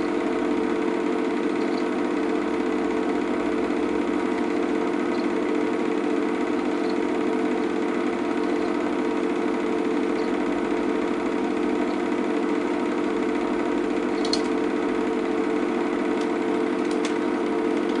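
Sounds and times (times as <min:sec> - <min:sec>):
film projector whirring: 0:00.0 - 0:18.0
projector clicks: 0:01.2 - 0:02.6, 0:04.9 - 0:05.5, 0:06.6 - 0:09.0, 0:09.9 - 0:10.6, 0:11.6 - 0:12.2, 0:13.9 - 0:15.0, 0:15.9 - 0:18.0.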